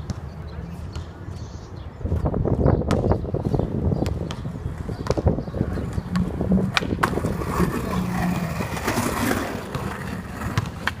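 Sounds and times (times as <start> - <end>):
skateboard wheels rolling: 3.6 - 11.0
skateboard clacks: 4.1 - 11.0.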